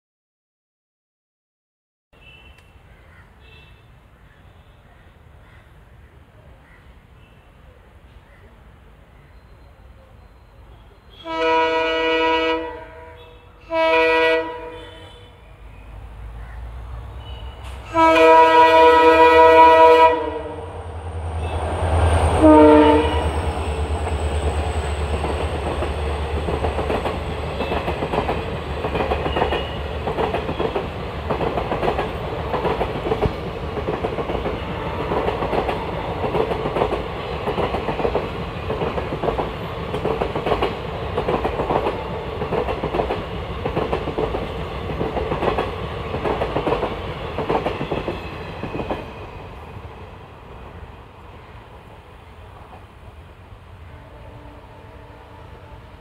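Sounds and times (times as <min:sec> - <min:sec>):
diesel locomotive horn blasts: 0:10.8 - 0:15.4, 0:17.1 - 0:24.0, 0:29.2 - 0:30.0, 0:34.4 - 0:35.2, 0:53.8 - 0:56.0
train wheels clacking over rail joints: 0:24.0 - 0:49.2.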